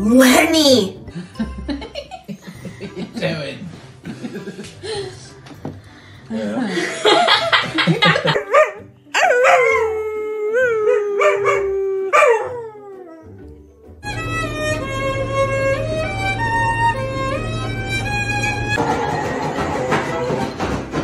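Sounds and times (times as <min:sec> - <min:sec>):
dog howling: 0:08.4 - 0:13.4, 0:18.8 - 0:20.5
violin music: 0:12.6 - 0:20.8.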